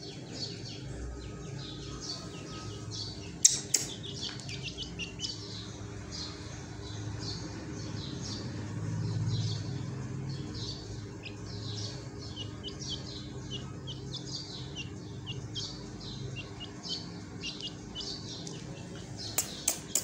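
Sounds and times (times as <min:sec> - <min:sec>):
chick peeping: 0:00.1 - 0:06.7, 0:10.7 - 0:20.0.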